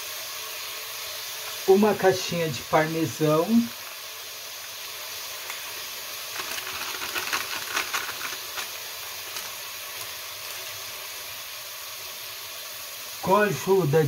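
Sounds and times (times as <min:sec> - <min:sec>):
vegetables sizzling in oil: 0:00.0 - 0:14.0
plastic packet crackling: 0:06.2 - 0:10.8.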